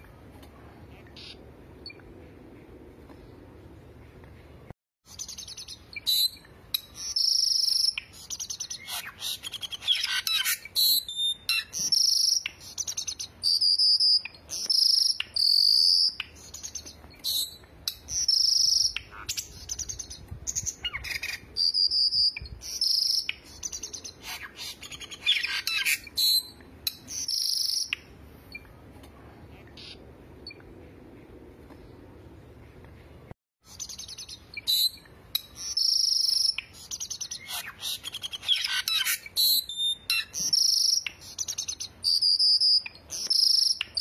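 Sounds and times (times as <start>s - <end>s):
birds whistling: 5.1s - 28.6s, 33.7s - 44.0s.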